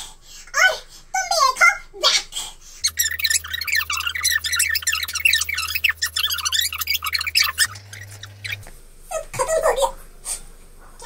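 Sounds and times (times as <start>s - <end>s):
low hum: 2.8s - 9.3s
sped-up squeaky voices: 2.8s - 9.8s.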